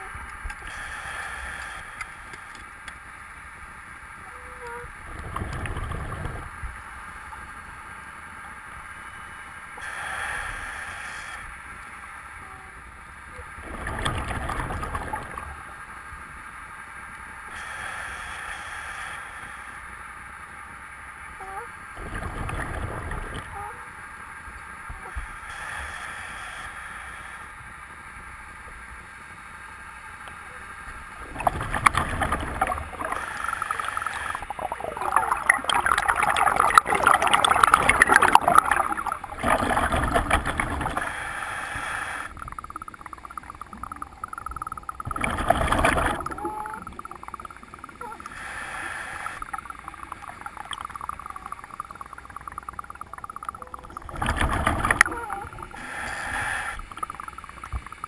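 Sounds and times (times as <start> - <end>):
diver breathing through regulator: 0.6 - 2.5, 9.8 - 11.6, 17.5 - 19.9, 25.1 - 27.6, 31.3 - 52.6, 53.2 - 57.6
gurgling exhaled bubbles: 4.9 - 6.7, 13.6 - 15.8, 22.0 - 23.6, 31.2 - 58.0.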